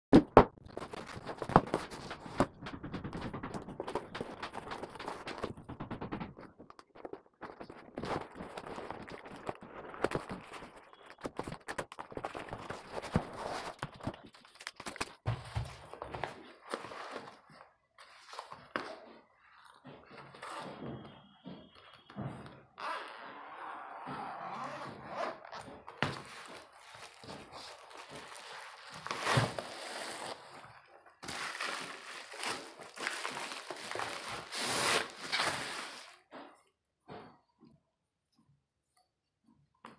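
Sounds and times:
fabric cover rustling: 24.5s - 36.2s
cardboard box being handled: 31.2s - 36.2s.

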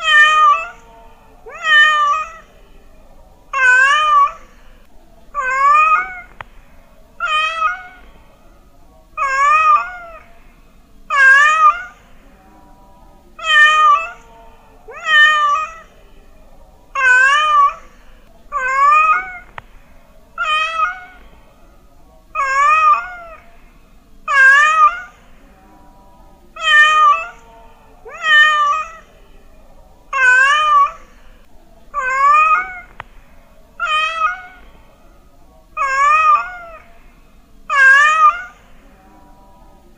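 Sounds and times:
cat meowing: 0.0s - 0.8s, 1.5s - 2.5s, 3.5s - 4.6s, 5.4s - 6.5s, 7.2s - 8.1s, 9.2s - 10.3s, 11.1s - 12.0s, 13.4s - 14.2s, 14.9s - 15.9s, 17.0s - 17.9s, 18.5s - 19.6s, 20.4s - 21.2s, 22.4s - 23.4s, 24.3s - 25.2s, 26.6s - 27.4s, 28.1s - 29.1s, 30.1s - 31.2s, 31.9s - 33.0s, 33.8s - 34.7s, 35.8s - 36.8s, 37.7s - 38.7s.

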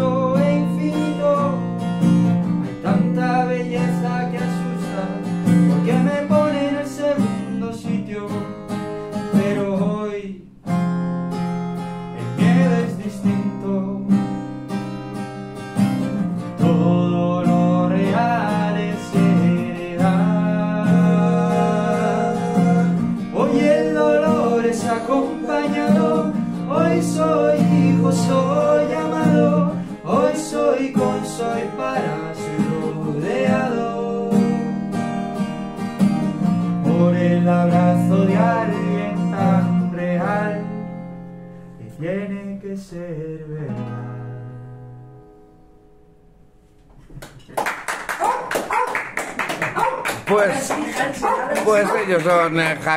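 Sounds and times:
man singing: 0.0s - 1.8s, 2.6s - 10.6s, 12.2s - 14.2s, 16.6s - 34.8s, 36.6s - 40.9s, 41.8s - 44.7s
acoustic guitar: 0.0s - 52.9s.

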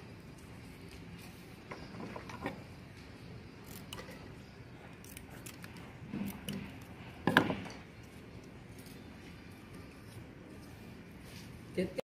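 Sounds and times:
scissors snipping: 3.6s - 4.2s, 5.0s - 6.8s.

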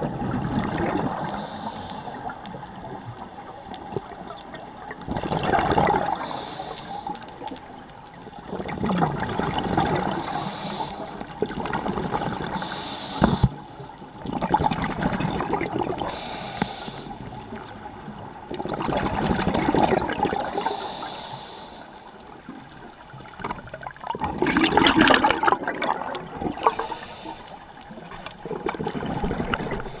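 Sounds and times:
regulator bubbles gurgling: 0.0s - 21.4s, 22.0s - 30.0s
inhaled air hissing: 1.2s - 2.3s, 6.2s - 7.2s, 10.2s - 11.2s, 12.6s - 13.6s, 16.1s - 17.3s, 20.6s - 22.0s, 26.6s - 27.7s.

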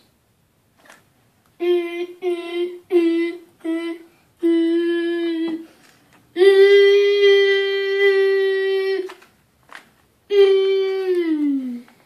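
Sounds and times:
child imitating alarm tones: 1.6s - 5.6s, 6.4s - 9.1s, 10.3s - 11.9s.

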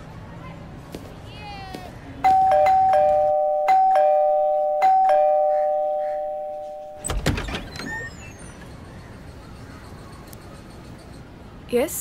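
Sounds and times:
two-tone doorbell chime: 2.2s - 7.1s
door unlatched and opened: 7.0s - 8.1s.

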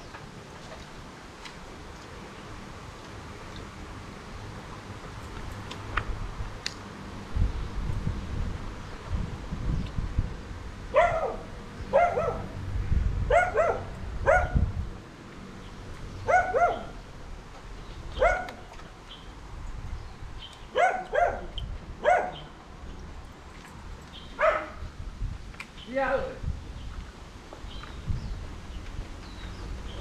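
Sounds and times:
dog barking: 10.9s - 12.6s, 13.3s - 14.6s, 16.3s - 17.0s, 18.2s - 18.6s, 20.8s - 22.4s, 24.4s - 24.8s.

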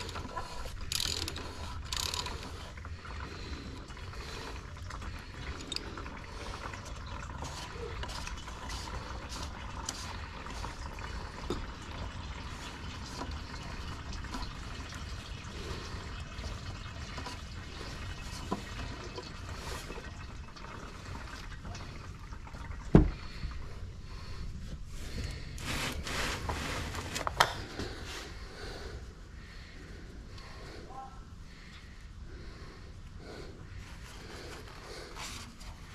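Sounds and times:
oil pouring into container: 0.0s - 24.2s.

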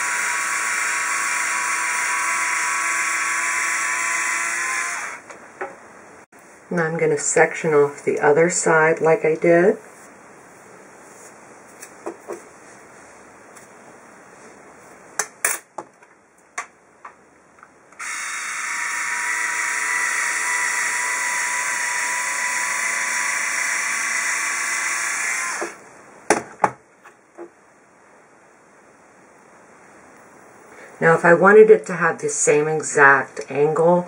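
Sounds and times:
hair iron motor whirring: 0.0s - 5.3s, 18.0s - 25.8s.

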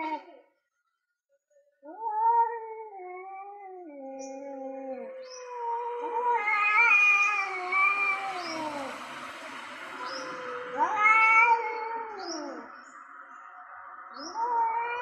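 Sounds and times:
harsh loud cat yowl: 0.0s - 0.3s, 1.9s - 8.9s, 10.7s - 12.7s, 14.2s - 15.0s
cats yowling: 0.0s - 0.4s, 1.9s - 12.9s, 14.1s - 15.0s.

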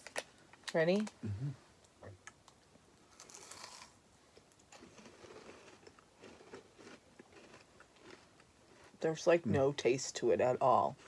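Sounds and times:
chocolate bar crunching: 2.2s - 9.0s
chewing: 4.7s - 9.0s.

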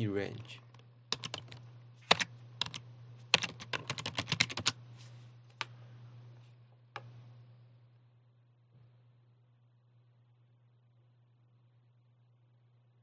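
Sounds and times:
steady low hum: 0.0s - 13.0s
keyboard typing: 1.1s - 4.8s.

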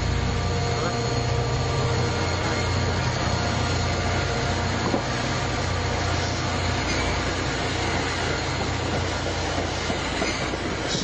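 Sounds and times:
train rumbling past: 0.0s - 11.0s.

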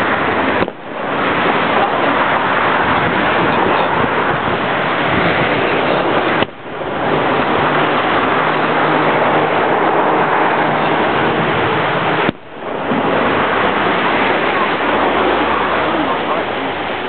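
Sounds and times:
fireworks booming and crackling: 0.0s - 17.0s.

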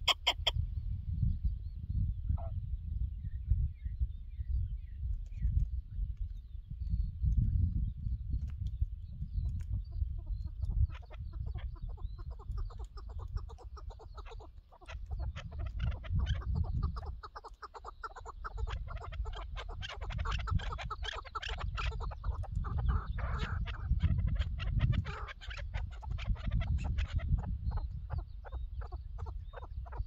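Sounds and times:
partridges clucking calls: 0.0s - 0.6s, 9.2s - 30.0s
wind on microphone: 0.0s - 30.0s.

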